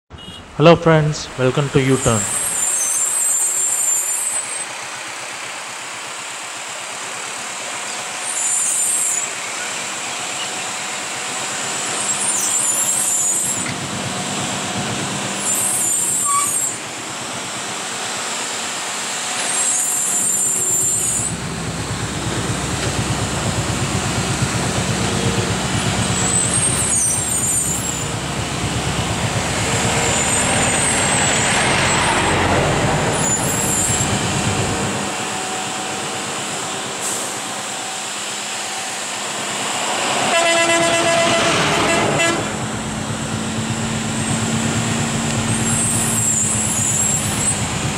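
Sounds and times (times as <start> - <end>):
road noise: 0.1 - 47.9
low diesel engine rumble: 0.2 - 47.9
air brakes hissing: 15.4 - 16.9, 36.8 - 38.1.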